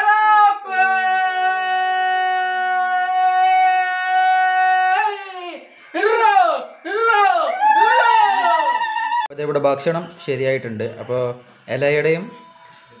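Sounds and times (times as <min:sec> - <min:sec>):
festive shouts: 0:00.0 - 0:09.3
man's loud high call: 0:00.0 - 0:09.3.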